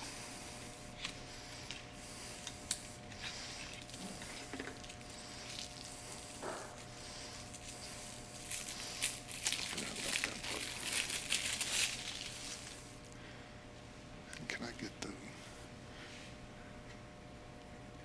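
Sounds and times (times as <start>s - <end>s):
paper rustling and crinkling: 3.2s - 12.8s.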